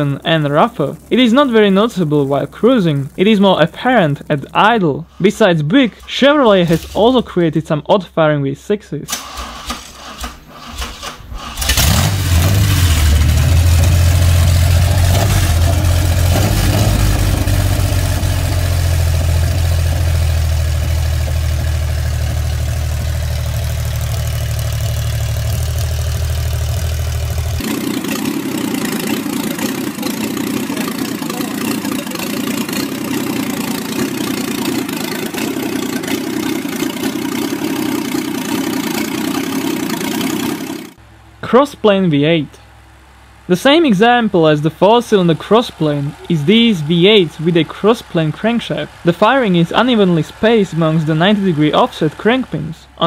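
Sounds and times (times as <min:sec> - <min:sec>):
engine cranking and starting: 0:00.0 - 0:07.4, 0:09.1 - 0:41.0
engine running unevenly: 0:00.0 - 0:07.5, 0:09.8 - 0:53.0.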